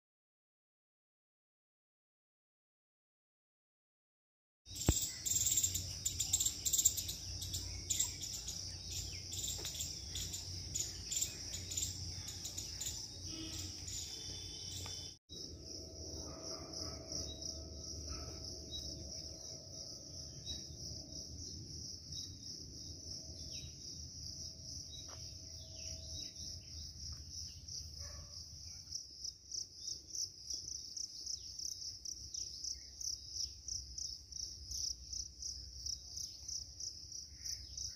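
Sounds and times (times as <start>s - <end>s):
high-pitched insect chorus: 4.7s - 37.9s.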